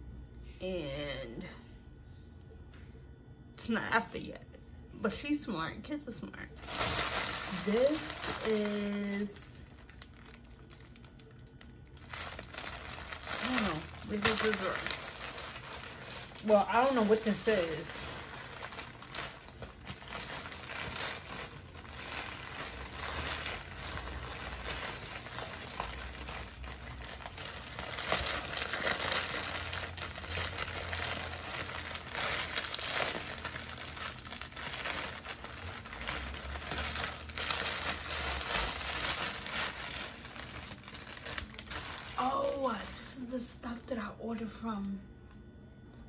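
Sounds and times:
plastic bag crinkling: 0:06.6 - 0:43.4.

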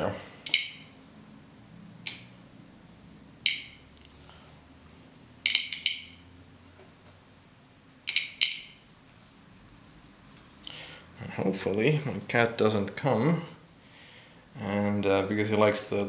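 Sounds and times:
steel ball bearings clicking: 0:00.4 - 0:01.0, 0:03.4 - 0:04.2, 0:05.4 - 0:06.2, 0:08.1 - 0:08.8.

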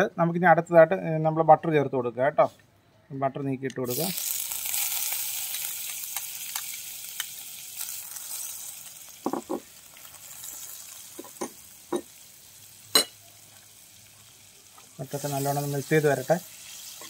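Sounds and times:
butter sizzling in pan: 0:03.9 - 0:17.0.

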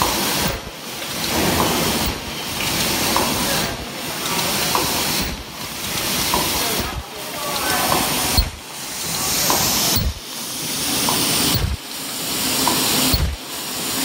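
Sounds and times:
machine hissing in cycles: 0:00.0 - 0:14.0
light machine ticks: 0:07.5 - 0:08.6, 0:11.1 - 0:11.8, 0:12.7 - 0:13.4.

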